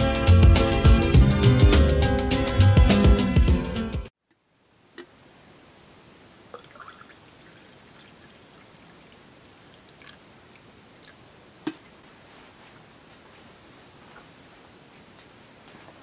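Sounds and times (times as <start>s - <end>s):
coffee pouring into mug: 6.5s - 11.2s.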